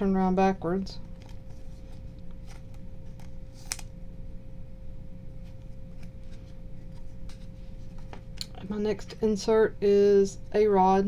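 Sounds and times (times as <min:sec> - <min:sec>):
faint steady hum: 0:00.0 - 0:11.0
card rustling in fingers: 0:01.0 - 0:03.9.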